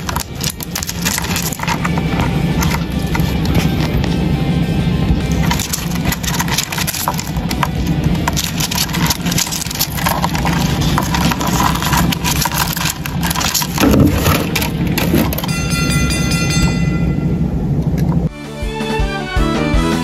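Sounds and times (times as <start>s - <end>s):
beetle legs scratching on bark: 0.0s - 4.2s, 5.3s - 15.5s
held ringing tones: 0.0s - 18.3s.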